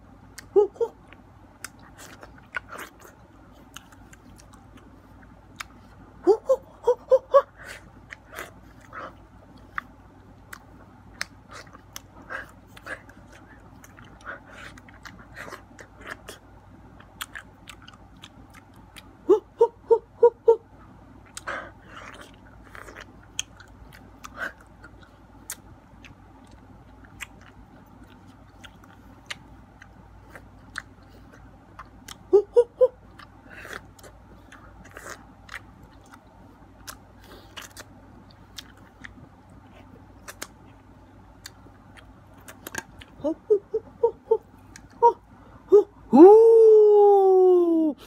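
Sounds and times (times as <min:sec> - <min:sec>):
person chewing mango: 0:00.0 - 0:46.1
hooting vocal sounds: 0:00.4 - 0:01.2, 0:06.2 - 0:09.2, 0:19.2 - 0:20.8, 0:32.1 - 0:35.2, 0:43.0 - 0:48.0.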